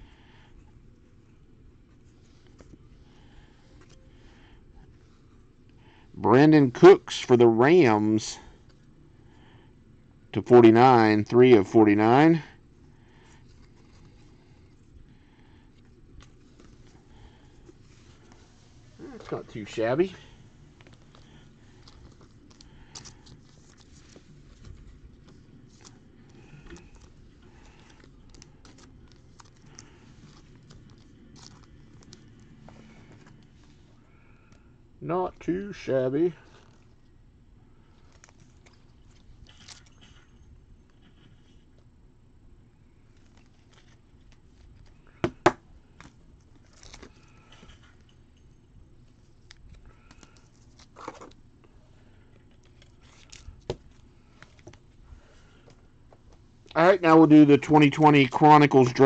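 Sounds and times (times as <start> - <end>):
low room hum: 0.0 - 59.0
cards clicking and rustling: 20.8 - 33.6, 43.1 - 48.1, 49.3 - 51.4, 52.3 - 54.8.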